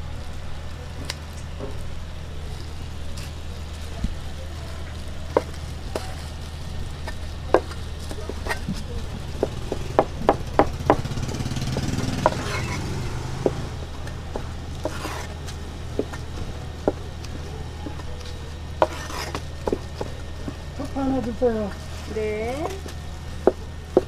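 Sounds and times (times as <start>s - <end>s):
steady low hum: 0.0s - 24.0s
cleaver chopping on cutting board: 11.7s - 12.6s.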